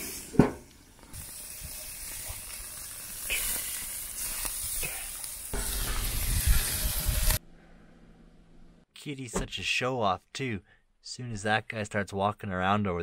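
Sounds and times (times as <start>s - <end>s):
burger patties sizzling: 0.0s - 7.4s.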